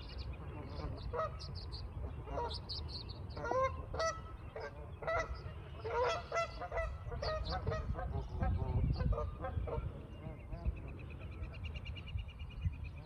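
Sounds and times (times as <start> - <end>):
geese honking: 0.4 - 2.7, 3.3 - 10.7.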